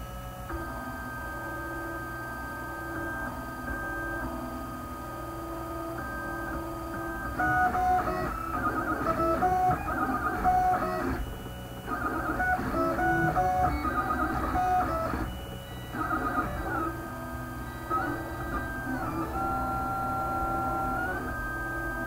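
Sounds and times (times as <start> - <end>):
stepper motors singing pitched tones: 7.5 - 17.0.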